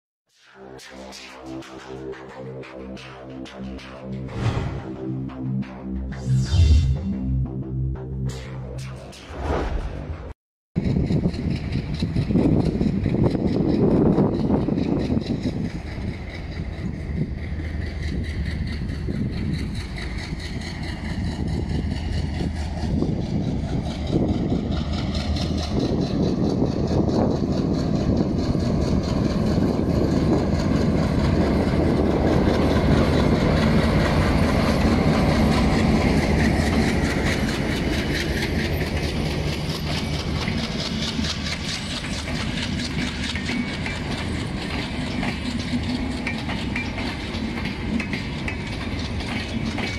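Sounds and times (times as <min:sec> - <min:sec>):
diesel locomotive engine humming: 0:01.5 - 0:49.9
train wheels clattering on rails: 0:10.8 - 0:49.9.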